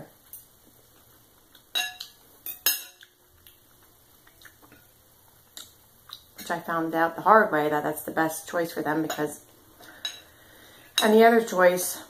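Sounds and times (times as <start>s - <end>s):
cutlery clinking on a plate: 1.7s - 3.2s.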